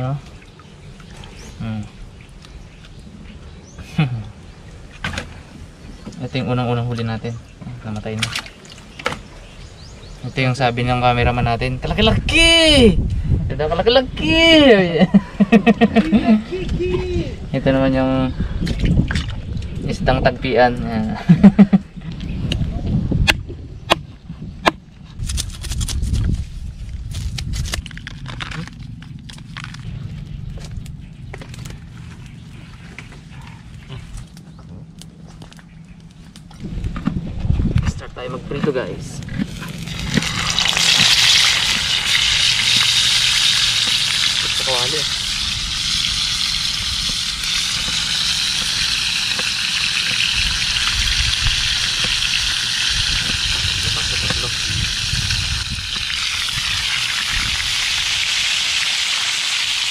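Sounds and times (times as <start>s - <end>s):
low rumble: 10.9s - 58.2s
fish sizzling in hot oil: 39.5s - 59.9s.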